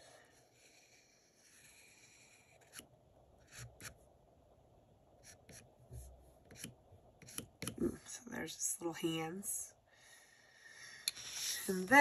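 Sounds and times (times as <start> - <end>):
pencil scratching on paper: 0.0 - 4.0, 5.2 - 7.8.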